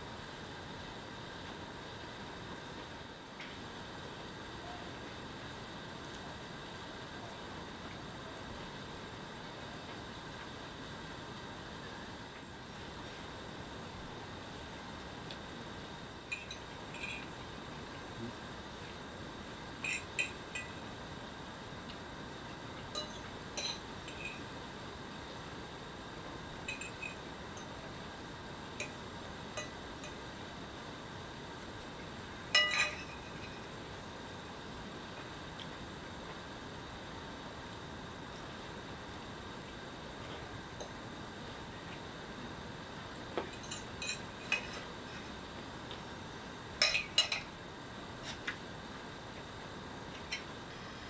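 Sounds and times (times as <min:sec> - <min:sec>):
fork clinking against plate: 0:32.6 - 0:33.4.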